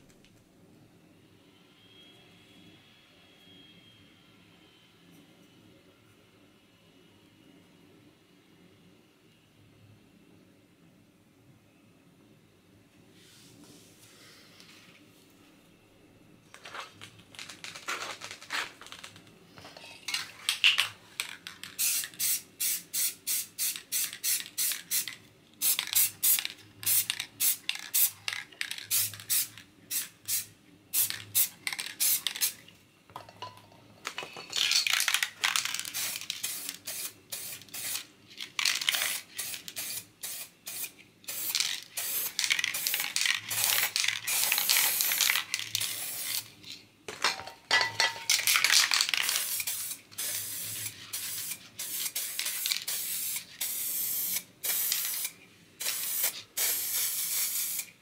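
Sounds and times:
aerosol spray cans hissing: 16.6 - 32.6, 34.1 - 58.0.

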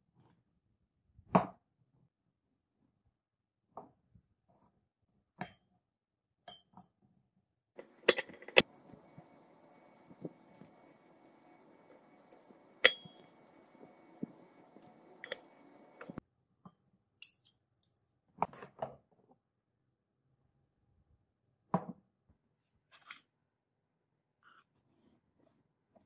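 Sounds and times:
glassware clinking: 7.8 - 16.2.

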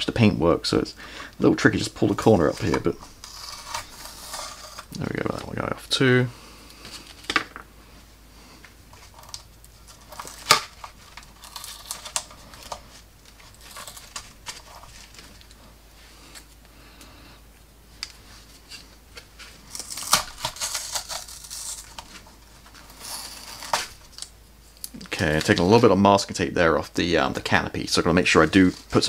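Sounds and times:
tape peeling with crinkling: 2.1 - 5.5, 8.9 - 15.6, 18.0 - 25.9.

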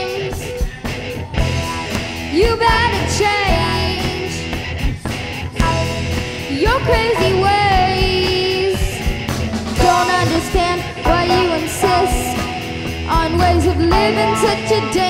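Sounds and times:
rock band playing: 0.0 - 15.0
person singing sliding notes: 9.8 - 15.0.

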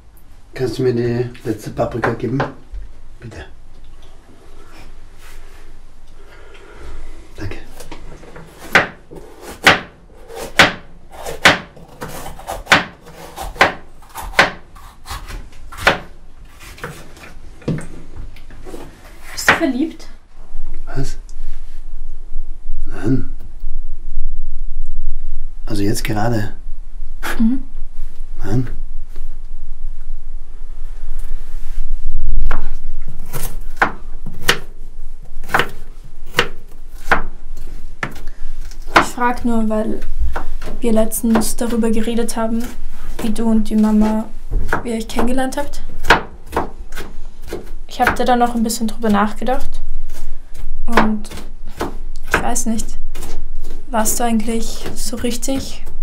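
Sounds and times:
knife scraping board: 8.4 - 17.4
knife chopping on wooden board: 8.5 - 16.1, 35.4 - 37.3, 46.0 - 48.2, 50.9 - 52.6.

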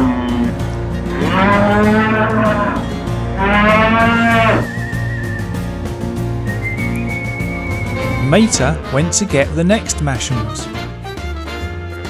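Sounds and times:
angry bull-like bellows: 0.0 - 5.7
background music: 0.0 - 12.0.

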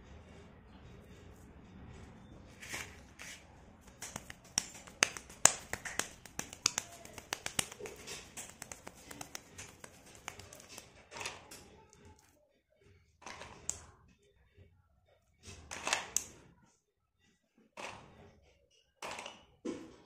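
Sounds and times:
hands handling wet clay: 2.5 - 11.4, 13.2 - 13.9
sharp clicks and taps: 3.8 - 11.0.

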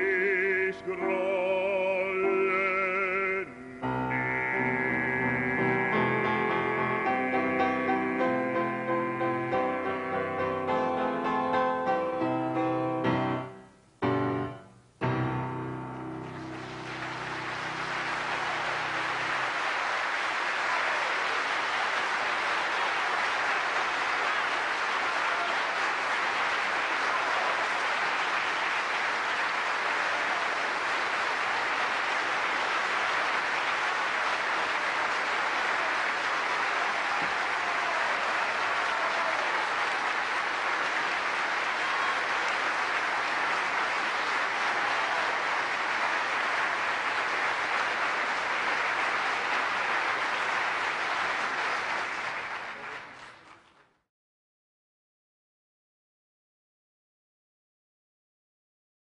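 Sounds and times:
audience applauding: 0.0 - 13.1, 15.9 - 54.0
piano chord: 0.0 - 18.8.

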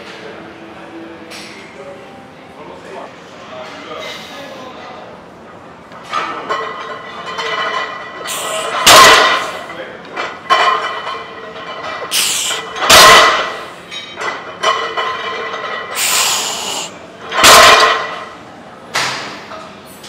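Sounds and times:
barbell dropped on gym floor: 8.8 - 9.4, 12.8 - 13.6, 17.3 - 18.2
hiss of breath: 12.1 - 12.6, 16.0 - 17.0.

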